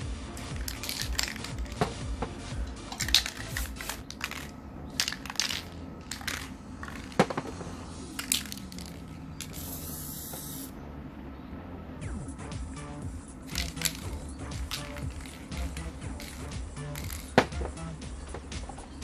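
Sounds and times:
spray cans clicking and knocking: 0:00.4 - 0:07.6, 0:08.2 - 0:10.6, 0:13.5 - 0:18.8
spray paint hiss: 0:03.0 - 0:07.1, 0:08.1 - 0:10.7.

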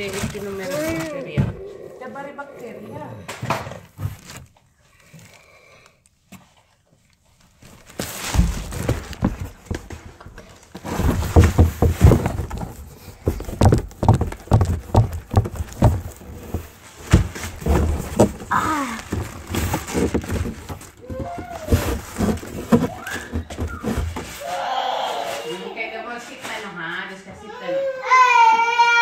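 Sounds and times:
thumps against cardboard box: 0:08.0 - 0:24.4.

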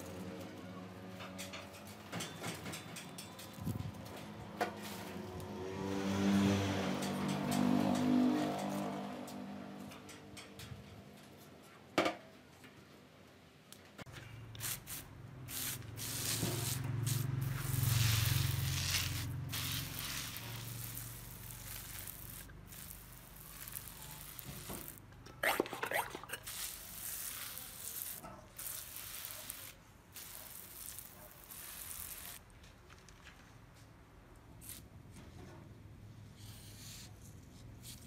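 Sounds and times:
water spray hissing: 0:14.6 - 0:32.4.

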